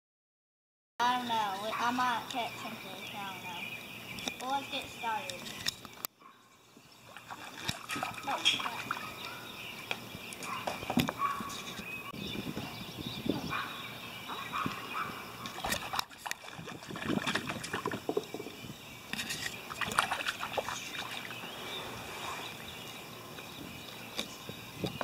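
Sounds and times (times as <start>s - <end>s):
water lapping against kayaks: 6.8s - 12.0s, 14.3s - 24.1s
water splashes: 7.0s - 9.5s, 14.5s - 18.6s, 19.2s - 23.0s.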